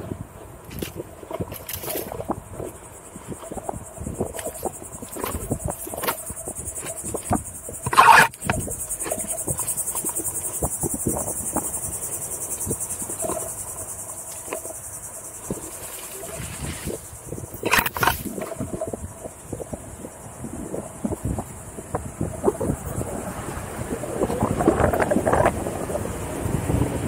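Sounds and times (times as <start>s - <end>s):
insects buzzing: 0.0s - 27.0s.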